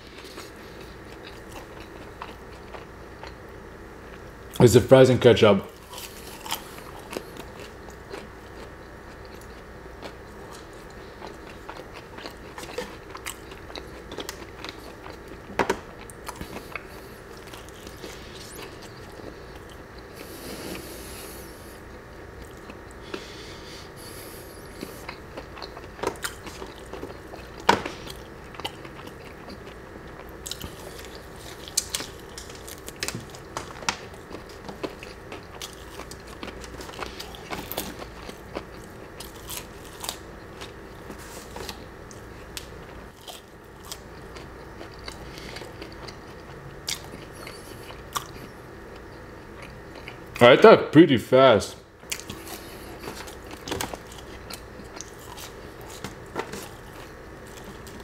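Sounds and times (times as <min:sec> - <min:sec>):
chewing and crunching food: 0:00.0 - 0:04.6, 0:05.7 - 0:50.5, 0:52.0 - 0:58.0.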